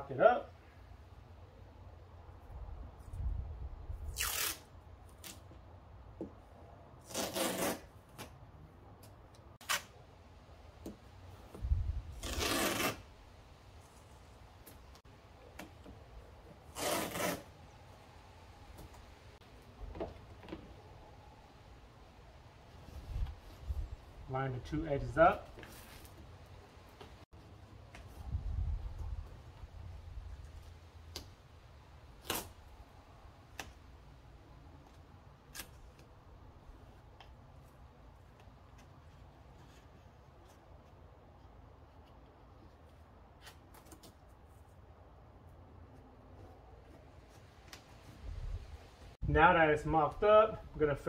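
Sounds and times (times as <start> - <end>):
masking tape pulled off roll: 4.0 - 5.4, 7.0 - 8.3, 9.6 - 10.0, 12.1 - 13.1, 16.7 - 17.6, 32.1 - 32.6.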